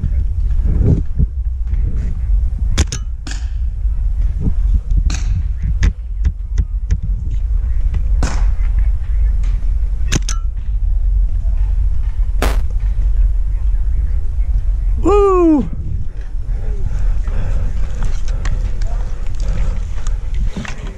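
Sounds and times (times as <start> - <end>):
low rumble: 0.0 - 20.6
paintball markers firing: 12.4 - 12.7.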